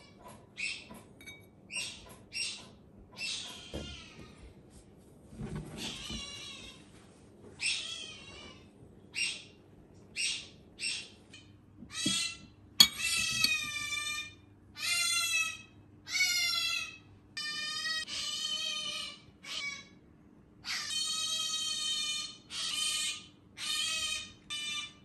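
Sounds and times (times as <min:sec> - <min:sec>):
pet animal high-pitched cries: 0:03.2 - 0:04.4, 0:05.8 - 0:06.8, 0:07.6 - 0:09.5, 0:11.9 - 0:20.0, 0:20.6 - 0:25.0.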